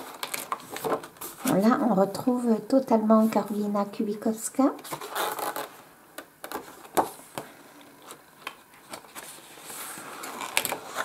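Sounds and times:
paper pages turning: 0.0s - 1.9s, 6.4s - 11.0s
paper sheet rustling: 0.0s - 2.0s, 8.0s - 11.0s.

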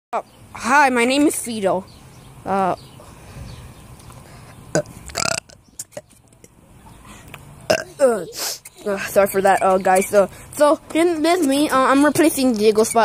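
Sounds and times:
person burping: 4.7s - 6.1s, 7.7s - 8.3s.

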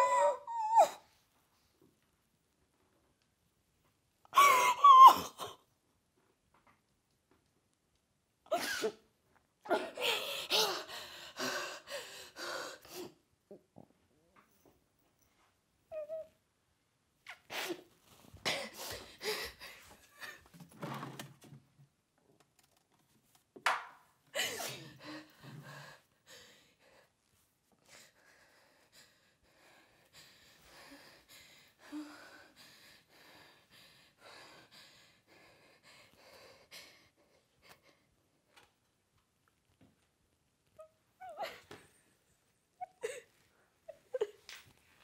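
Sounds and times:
woman sobbing: 0.0s - 1.0s, 4.3s - 5.6s, 9.7s - 13.1s, 41.2s - 41.8s, 42.8s - 44.5s.

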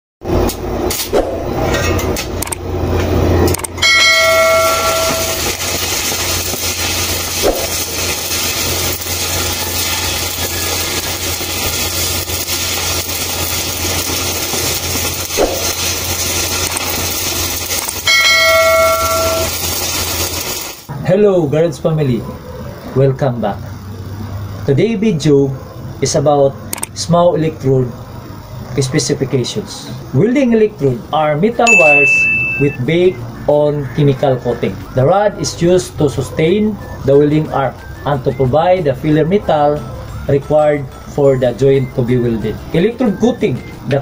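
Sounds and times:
welding arc crackling: 0.3s - 20.9s
bell-like chime: 3.8s - 5.4s, 18.1s - 19.6s, 31.7s - 32.8s.

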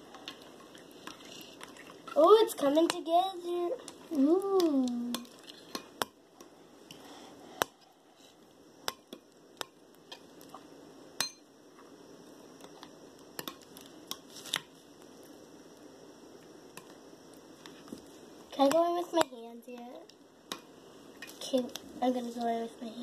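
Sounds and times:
spoon stirring slime: 0.1s - 6.0s.

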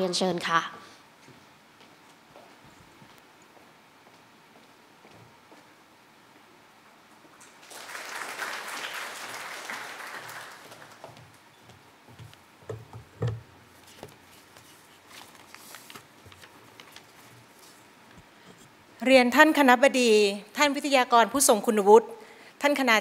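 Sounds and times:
audience applauding: 7.6s - 11.4s.

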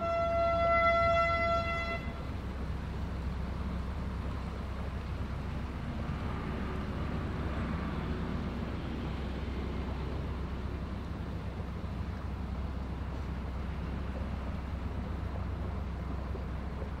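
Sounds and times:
horn tone: 0.0s - 2.3s
boat diesel engine rumbling: 0.0s - 17.0s.

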